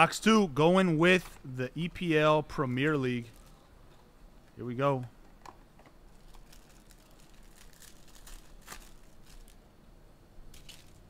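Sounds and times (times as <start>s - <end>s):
wrapper tearing and crinkling: 6.1s - 9.6s, 10.5s - 11.0s.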